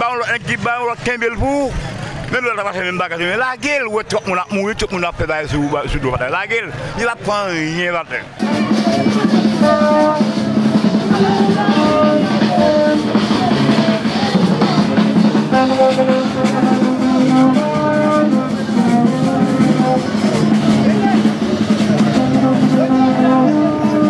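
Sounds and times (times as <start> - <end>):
music with drums and held notes: 8.4 - 24.0.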